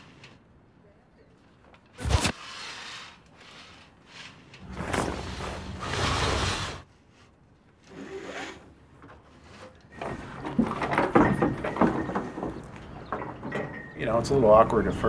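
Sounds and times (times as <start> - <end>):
creak of lines: 7.8 - 10.0.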